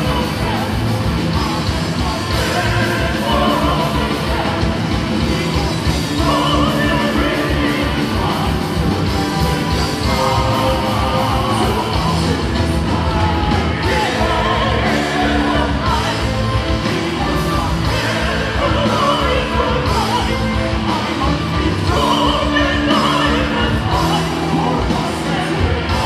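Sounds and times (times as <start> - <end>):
metal band playing live: 0.0 - 26.0
person singing: 0.0 - 26.0.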